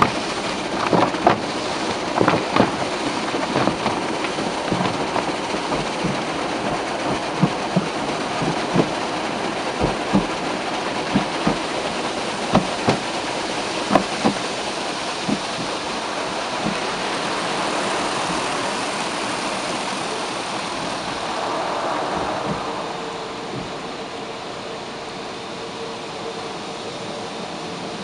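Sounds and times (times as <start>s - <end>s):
water jets drumming on a car: 0.0s - 28.0s
dull thumps on car body: 13.9s - 14.5s.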